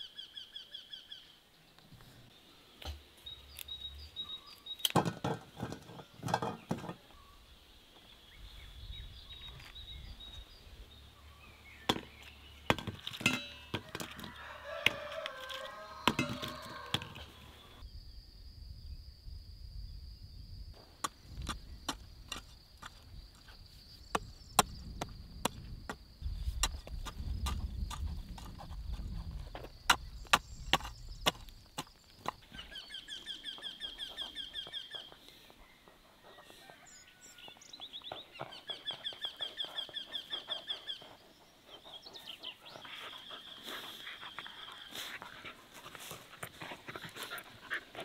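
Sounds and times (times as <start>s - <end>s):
footsteps on dry soil: 11.4s - 17.8s, 20.8s - 35.2s, 42.9s - 48.0s
rooster crowing: 13.7s - 17.8s, 35.7s - 37.6s.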